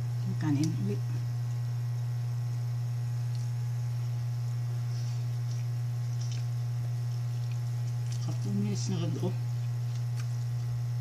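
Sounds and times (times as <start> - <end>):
low hum: 0.0 - 11.0
soft clicks of chewing: 3.2 - 4.2, 5.1 - 8.5, 9.5 - 10.8.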